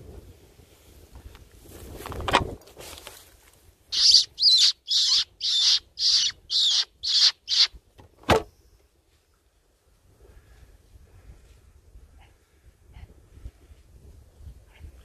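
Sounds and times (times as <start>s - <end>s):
rustle: 0.0s - 4.0s, 7.7s - 15.0s
fox caller squealing: 3.9s - 7.7s.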